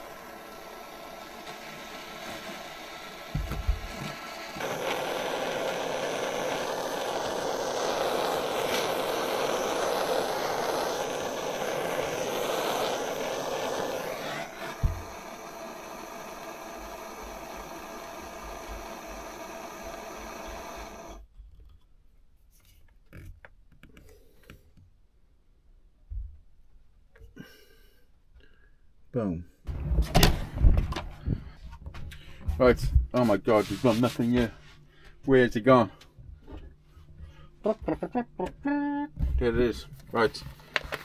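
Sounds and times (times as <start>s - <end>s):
blowtorch roaring: 0.0s - 21.2s
thump: 3.3s - 3.9s, 14.8s - 15.0s, 29.7s - 31.1s.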